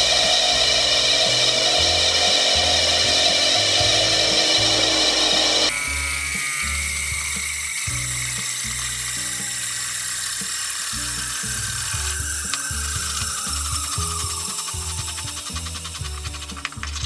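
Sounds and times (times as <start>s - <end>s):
steady high hiss: 0.0s - 17.0s
faint falling high tone: 4.0s - 15.9s
music with plodding bass: 11.0s - 17.0s.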